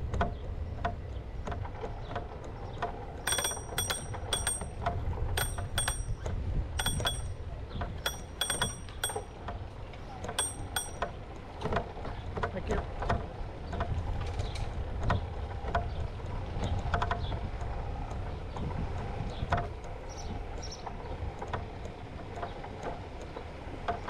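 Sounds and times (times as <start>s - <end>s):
low rumble of riding: 0.0s - 24.0s
bicycle bell dinging: 3.3s - 4.8s, 5.4s - 7.4s, 8.0s - 9.4s, 10.4s - 11.1s.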